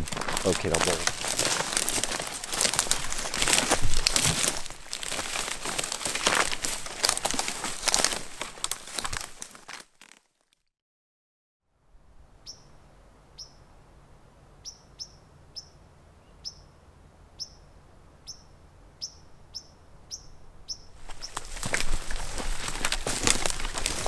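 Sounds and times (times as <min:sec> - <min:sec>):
small bird chip calls: 0:12.4 - 0:12.8, 0:13.4 - 0:13.7, 0:14.6 - 0:16.8, 0:17.4 - 0:21.6.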